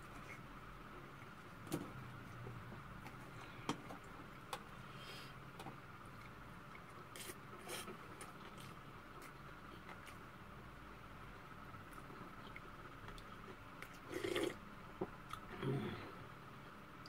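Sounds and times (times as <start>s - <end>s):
mouth sounds of eating: 12.2s - 14.6s.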